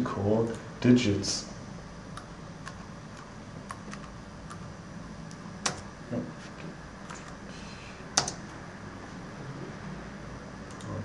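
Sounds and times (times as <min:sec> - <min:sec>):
faint steady hum: 0:00.0 - 0:11.0
computer keystrokes and clicks: 0:02.1 - 0:04.7, 0:05.3 - 0:05.9, 0:08.2 - 0:08.5, 0:10.7 - 0:11.0.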